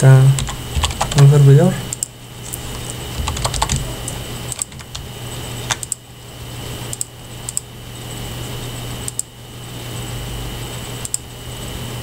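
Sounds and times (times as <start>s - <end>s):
steady low hum: 0.0s - 12.0s
keyboard keys clicking: 0.3s - 6.0s.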